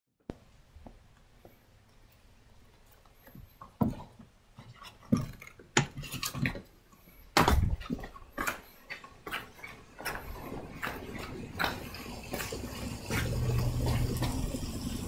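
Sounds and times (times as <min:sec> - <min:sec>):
knocks and clattering: 0:07.4 - 0:15.0.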